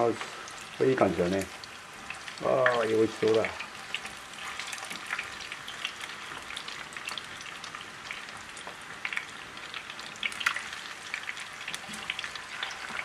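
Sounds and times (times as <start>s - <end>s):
chicken sizzling in frying pan: 0.0s - 13.0s.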